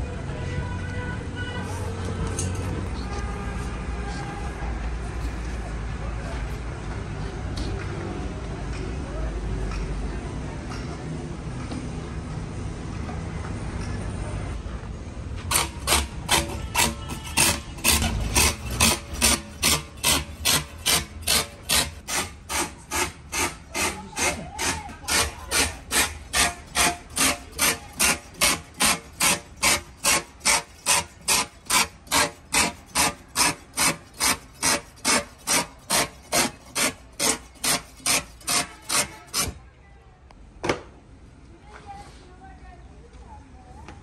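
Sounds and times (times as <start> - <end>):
hand tool scraping rubber: 15.4 - 39.6.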